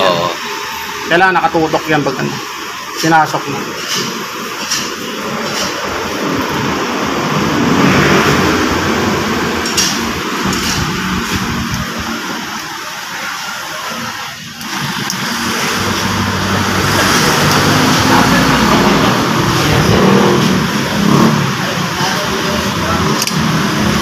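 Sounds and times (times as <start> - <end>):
engine running: 3.6 - 24.0
traffic: 4.7 - 24.0.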